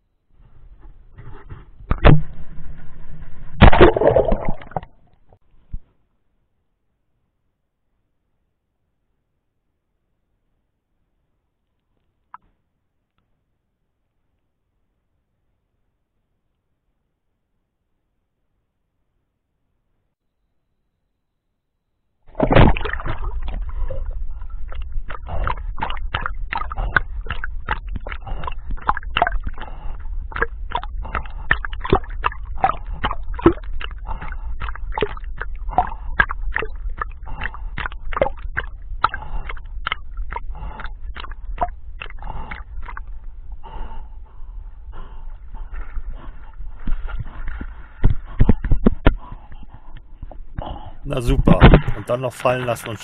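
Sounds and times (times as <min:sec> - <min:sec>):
water splashing: 0:01.9 - 0:05.1, 0:22.3 - 0:44.7, 0:51.1 - 0:53.0.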